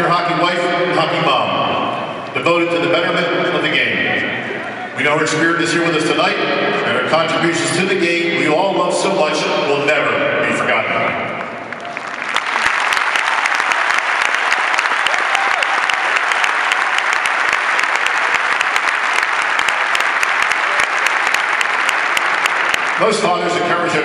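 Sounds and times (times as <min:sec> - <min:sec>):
crowd applauding: 0:11.4 - 0:24.0.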